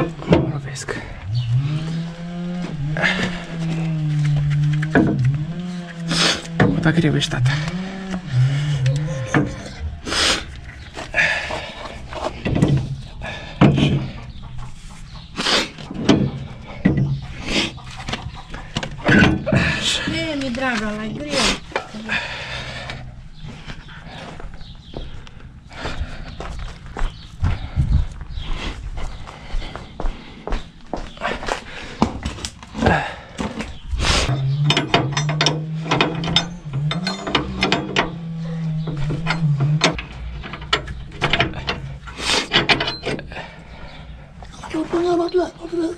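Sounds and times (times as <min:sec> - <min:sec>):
metal knocks and clanks: 0:00.0 - 0:14.7, 0:15.8 - 0:22.0, 0:32.0 - 0:43.3
steady low hum: 0:00.0 - 0:15.2.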